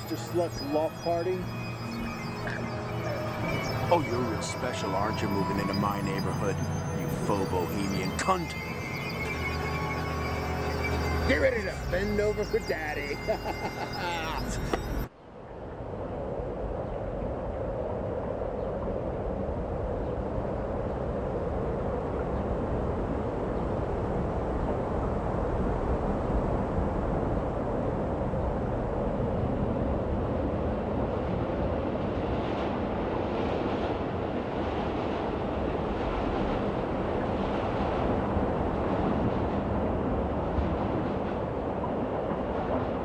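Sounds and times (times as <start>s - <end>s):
train rumbling on rails: 24.1s - 43.0s.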